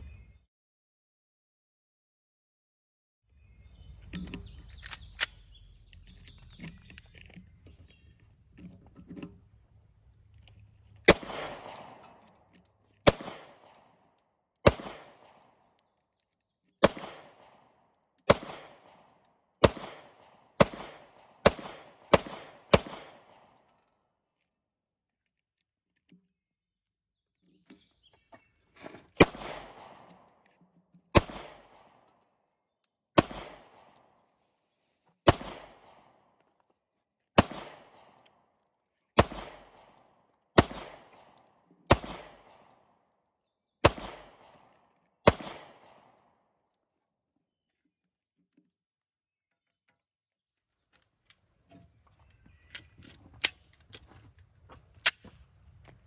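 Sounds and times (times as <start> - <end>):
clicks of handling a pistol: 4.0 - 8.0, 23.6 - 26.3, 50.9 - 56.0
pistol shots echoing: 11.1 - 12.3, 13.0 - 15.6, 16.8 - 23.6, 29.2 - 30.3, 31.1 - 32.1, 33.1 - 34.0, 35.2 - 36.2, 37.4 - 38.2, 39.2 - 40.0, 40.6 - 42.8, 43.8 - 46.2.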